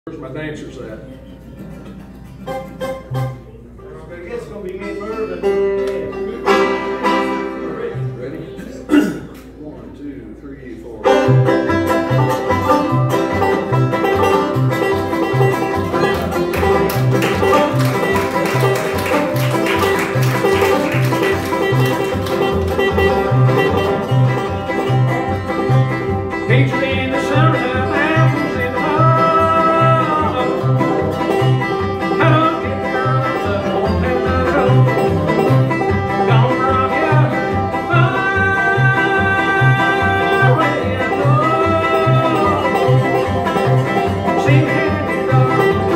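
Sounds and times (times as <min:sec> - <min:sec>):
guitar: 0:00.0 - 0:09.6, 0:10.9 - 0:45.9
banjo: 0:00.1 - 0:04.1, 0:04.8 - 0:09.3, 0:11.0 - 0:45.9
sliding melody line: 0:11.2 - 0:45.9
upright bass thumping: 0:11.2 - 0:45.9.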